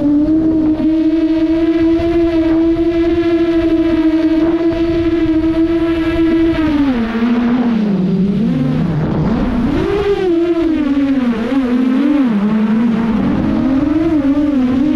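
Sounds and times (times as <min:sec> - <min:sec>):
drone motors whining: 0:00.0 - 0:14.9.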